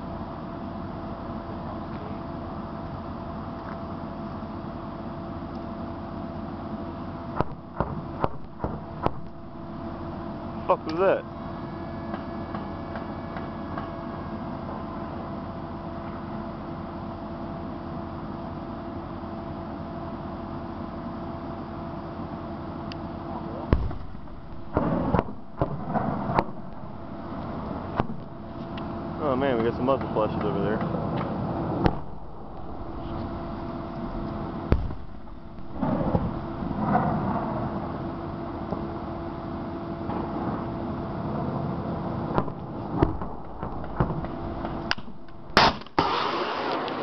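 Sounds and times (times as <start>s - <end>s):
steady engine hum: 0.0s - 46.0s
faint held tone: 11.5s - 14.5s
loud sharp crack: 23.7s - 26.8s, 30.4s - 33.5s, 34.3s - 37.5s, 42.3s - 47.0s.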